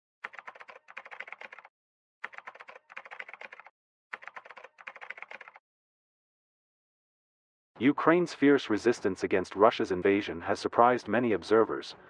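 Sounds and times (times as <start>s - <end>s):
rapid keyboard typing: 0.2s - 5.6s.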